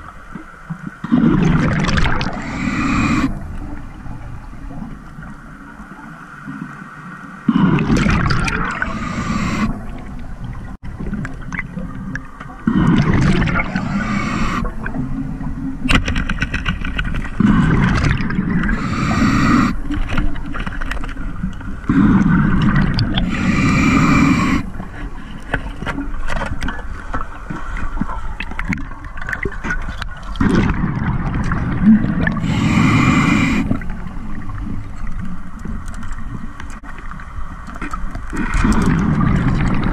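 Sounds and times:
underwater exhalation bubbles: 1.0s - 3.4s, 7.5s - 10.1s, 12.2s - 15.1s, 17.2s - 20.0s, 21.8s - 24.8s, 30.3s - 34.0s, 38.4s - 39.9s
quiet breaths through regulator: 2.2s - 6.6s, 7.2s - 10.8s, 12.2s - 29.0s, 31.7s - 39.9s.

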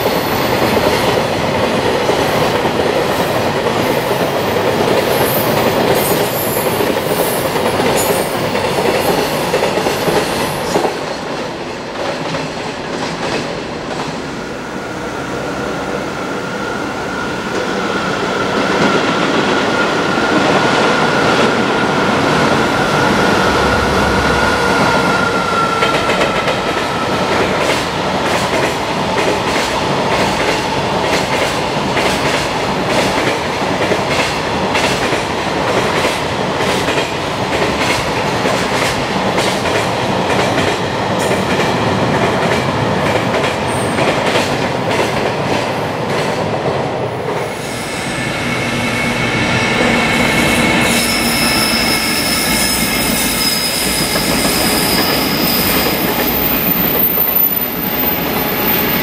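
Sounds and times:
high-pitched train squeal: 3.2s - 11.1s, 14.4s - 27.8s, 47.4s - 59.0s.

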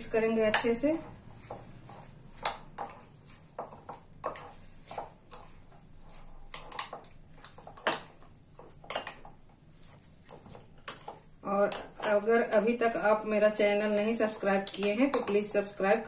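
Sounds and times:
spoon scraping and clinking bowl: 1.8s - 12.3s.

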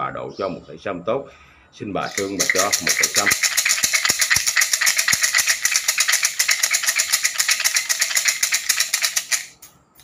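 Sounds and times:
fortune sticks rattling in cylinder: 2.1s - 9.7s.

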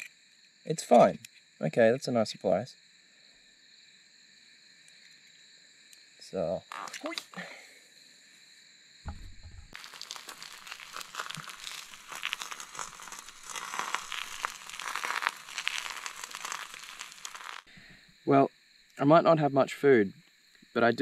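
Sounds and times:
low thump: 9.1s - 9.8s
eggs sizzling in a pan: 9.7s - 17.9s.

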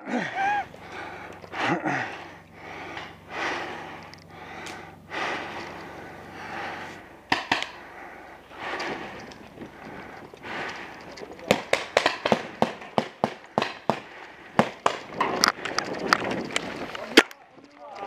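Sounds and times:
heavy panting breaths: 0.0s - 12.7s, 13.4s - 14.8s
paintball markers firing: 7.3s - 7.8s, 11.4s - 15.4s.

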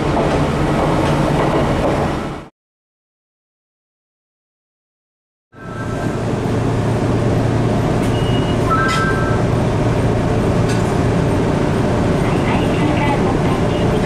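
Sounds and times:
tram low hum: 0.0s - 2.5s, 5.6s - 14.0s
short high beeps: 8.1s - 9.5s.

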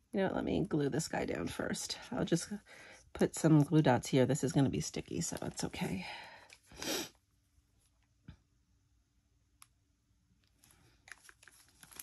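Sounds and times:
paper rustling: 10.6s - 12.0s.

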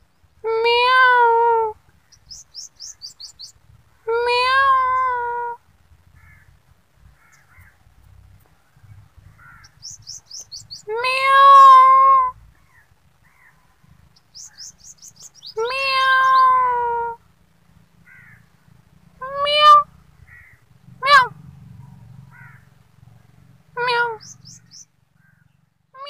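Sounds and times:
cat meowing: 10.9s - 12.3s, 15.6s - 17.2s, 19.2s - 19.9s, 23.8s - 24.2s.

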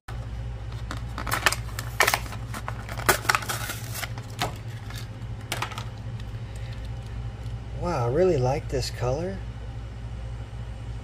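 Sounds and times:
plastic blister pack crackling: 0.8s - 5.8s.

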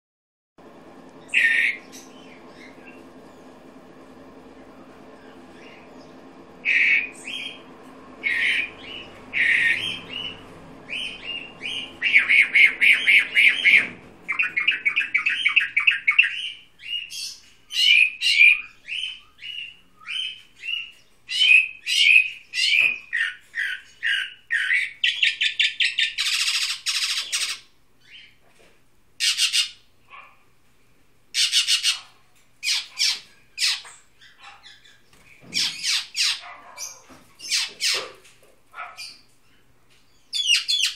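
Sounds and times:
harsh rasping bird notes: 1.2s - 3.5s, 6.6s - 18.8s
songbird singing chirps and trills: 5.1s - 28.4s.

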